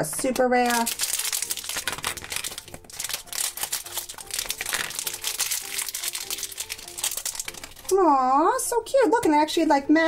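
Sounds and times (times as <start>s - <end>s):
foil wrapper crinkling: 0.0s - 8.0s.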